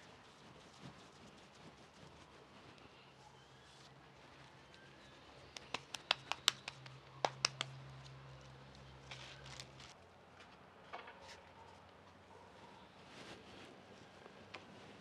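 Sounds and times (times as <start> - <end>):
hands patting dough: 5.4 - 7.9
tortillas rustling on metal griddle: 9.0 - 10.0.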